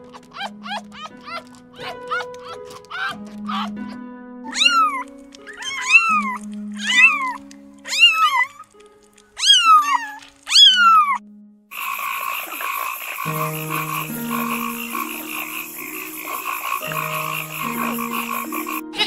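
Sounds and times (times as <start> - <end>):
kitten mewing: 0.0 - 8.7, 9.4 - 11.2
frog croaking trill: 4.5 - 8.6, 9.4 - 19.0.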